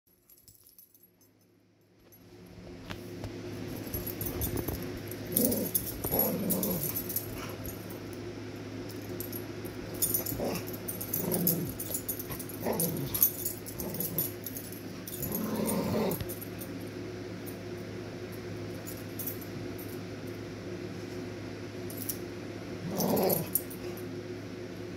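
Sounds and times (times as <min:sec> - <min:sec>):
steady low hum: 0:00.1 - 0:24.9
rustling and small clicks: 0:02.9 - 0:07.8
dogs growling: 0:05.3 - 0:07.7, 0:10.0 - 0:14.4, 0:15.1 - 0:16.4, 0:22.8 - 0:24.0.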